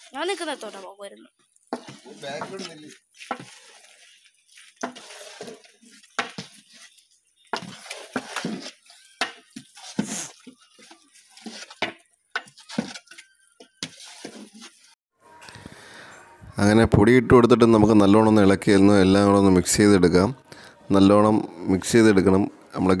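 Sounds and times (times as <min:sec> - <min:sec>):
metal ladle scraping a metal pot: 0:01.7 - 0:15.0, 0:18.0 - 0:20.0.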